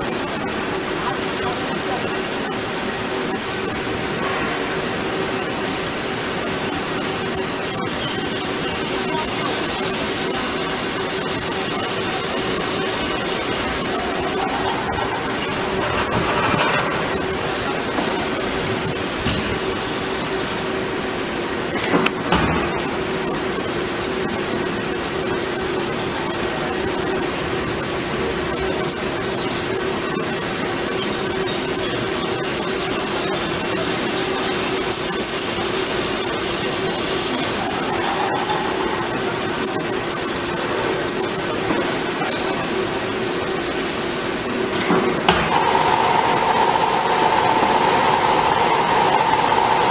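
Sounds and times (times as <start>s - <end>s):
drill cutting metal: 0.0s - 20.4s, 45.2s - 49.9s
drilling machine hum: 0.0s - 49.9s
drilling machine boring into metal: 45.2s - 49.9s.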